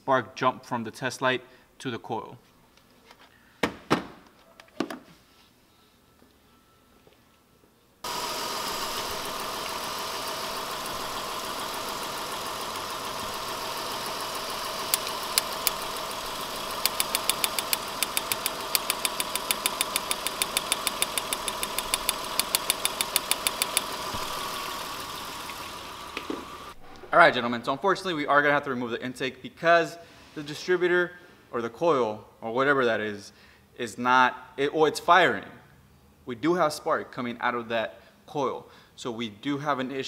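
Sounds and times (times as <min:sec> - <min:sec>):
car engine running: 0:08.0 - 0:26.8
sharp snapping spark clicks: 0:16.8 - 0:23.9.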